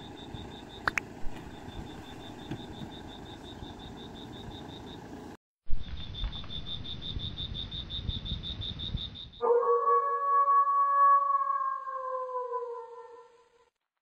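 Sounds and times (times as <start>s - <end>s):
insect chirping: 0.0s - 10.0s.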